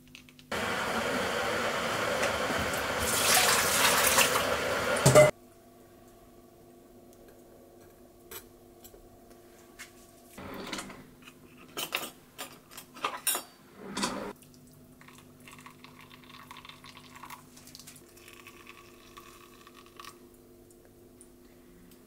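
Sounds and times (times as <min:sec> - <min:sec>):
hot water trickling into mug: 0:02.6 - 0:04.4, 0:14.6 - 0:20.2
dishes and utensils clattering: 0:10.5 - 0:14.3.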